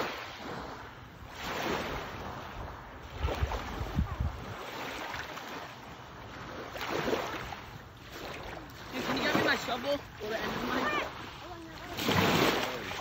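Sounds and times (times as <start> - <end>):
small waves lapping: 0.0 - 13.0
wind buffeting microphone: 1.8 - 4.8.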